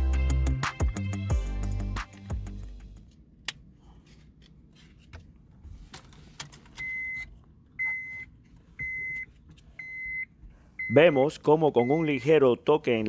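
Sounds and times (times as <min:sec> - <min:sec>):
car warning chime beeping: 0:06.8 - 0:12.3.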